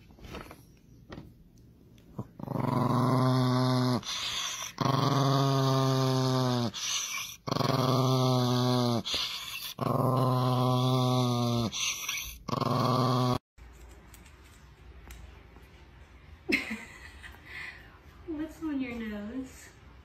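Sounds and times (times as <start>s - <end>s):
small dog growling: 2.1s - 13.4s.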